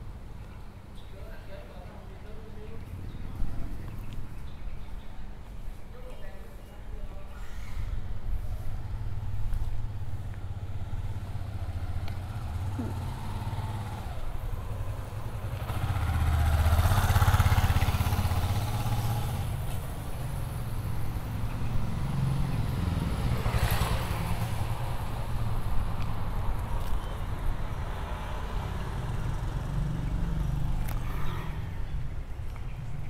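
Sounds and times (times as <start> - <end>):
motorbikes riding past: 8.8 - 25.6, 27.5 - 33.0.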